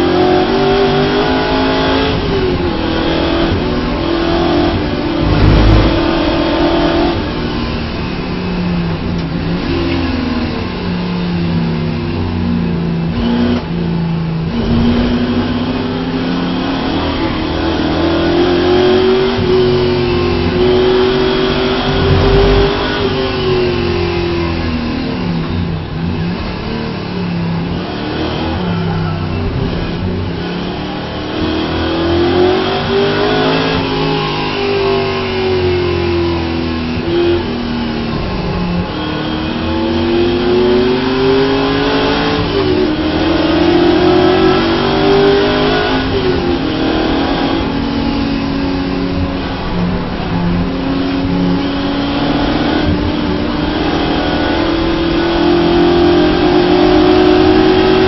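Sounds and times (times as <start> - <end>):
race car engine revving: 0.0 - 58.0
short low thump: 5.2 - 6.4.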